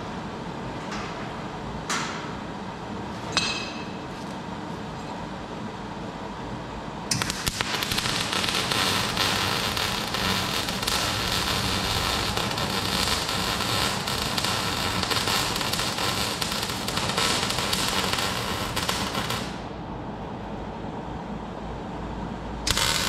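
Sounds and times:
welder arc crackling: 7.1s - 19.7s, 22.7s - 23.0s.

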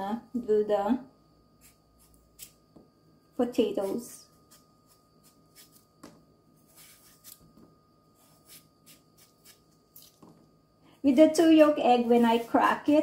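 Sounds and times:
knife scraping potato skin: 1.6s - 2.6s, 3.6s - 5.9s, 6.6s - 7.6s, 8.2s - 10.2s, 11.9s - 13.0s.

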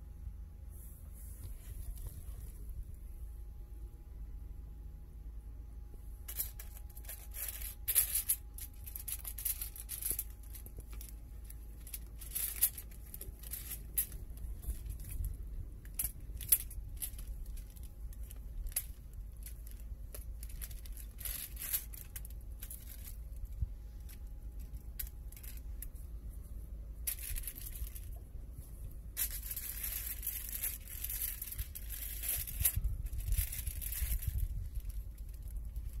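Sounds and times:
aluminium foil crinkling: 6.2s - 26.1s, 27.0s - 28.2s, 29.1s - 36.0s.

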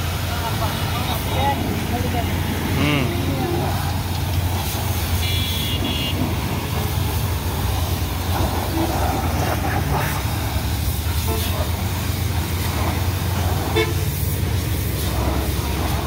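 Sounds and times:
pressure washer spray on tyre: 0.0s - 16.0s
short horn toot: 5.2s - 6.2s.

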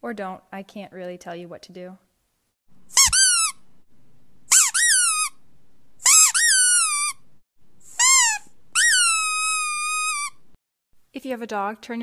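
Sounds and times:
high-pitched squeals: 6.0s - 7.2s, 7.9s - 10.4s.

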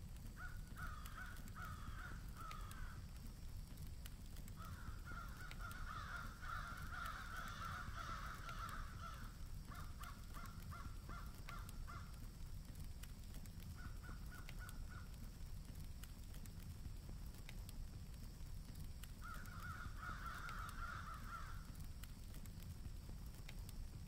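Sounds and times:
crows cawing: 0.4s - 3.1s, 4.6s - 12.2s, 13.8s - 15.2s, 19.2s - 21.8s.

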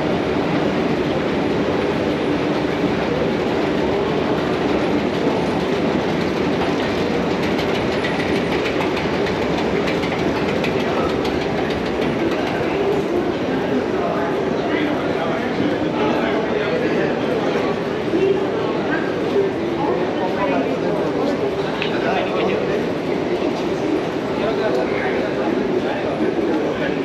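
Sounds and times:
escalator steps clicking: 5.1s - 12.7s.

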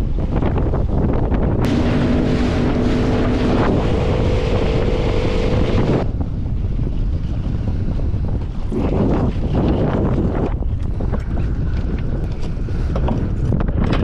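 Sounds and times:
water rushing along hull: 0.0s - 14.0s
wind buffeting microphone: 0.0s - 14.0s
steady engine tone: 1.6s - 6.4s
outboard motor running: 1.6s - 13.5s.

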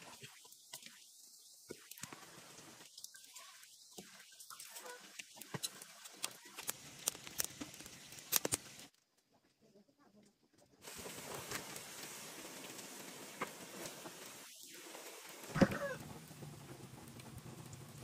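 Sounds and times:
wood fire crackling and popping: 4.4s - 9.1s, 10.8s - 18.0s
fat hissing in wok: 10.8s - 16.4s.

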